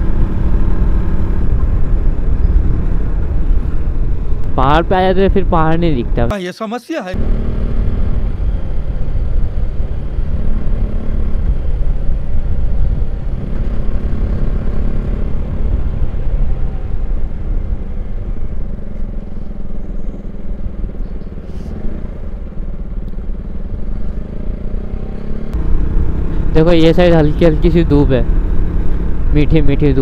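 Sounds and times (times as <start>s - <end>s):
motorcycle engine running: 7.2s - 30.0s.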